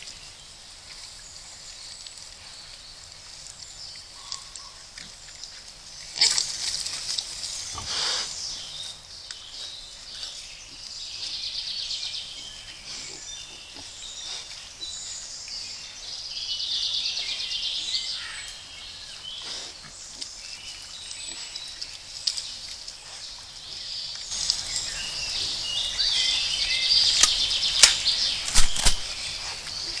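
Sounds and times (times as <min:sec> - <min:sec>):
animal rustling in mud: 0:00.0 - 0:11.5, 0:19.2 - 0:30.0
birds singing: 0:00.0 - 0:30.0.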